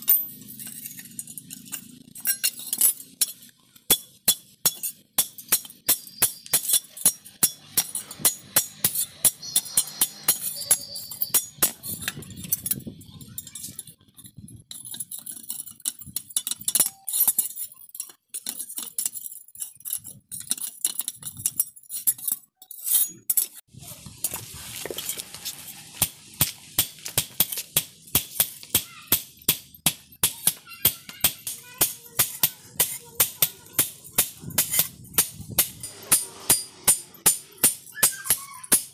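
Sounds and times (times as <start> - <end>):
hammer striking metal on anvil: 3.2 - 11.9, 26.0 - 38.9.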